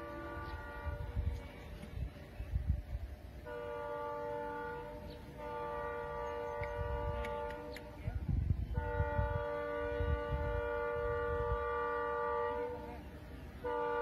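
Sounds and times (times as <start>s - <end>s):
train horn blasts: 0.0s - 1.6s, 3.3s - 14.0s.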